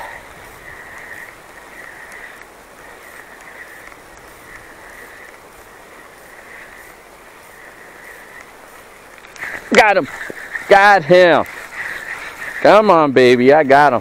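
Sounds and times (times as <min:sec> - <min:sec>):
river flowing: 0:00.0 - 0:14.0
fishing reel whirring: 0:00.1 - 0:12.7.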